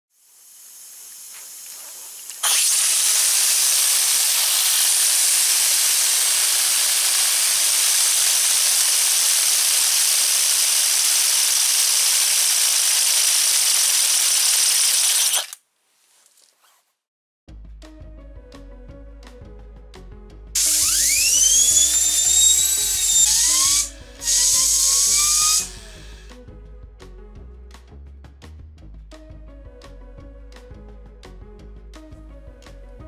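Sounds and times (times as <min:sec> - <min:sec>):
compressed air hissing: 0:20.8 - 0:26.3.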